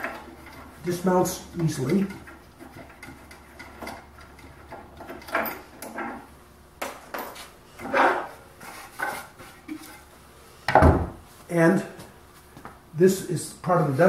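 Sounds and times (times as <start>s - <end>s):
wooden knocks and scrapes: 7.1s - 10.0s.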